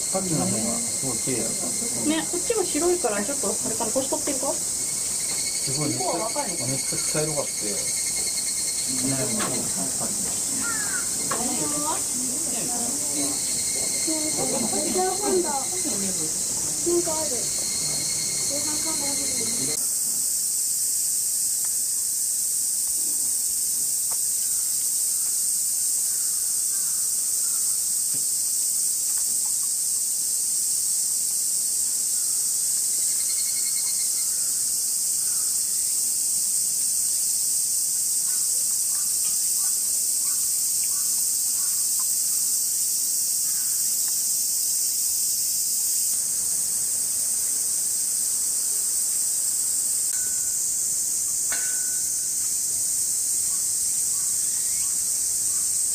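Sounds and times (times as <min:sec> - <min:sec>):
cicadas buzzing: 0:00.0 - 0:55.9.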